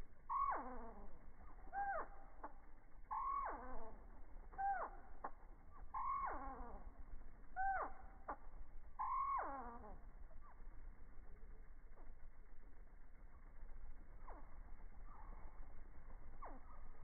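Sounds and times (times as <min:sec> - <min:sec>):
slowed hummingbird calls: 0:00.0 - 0:17.0.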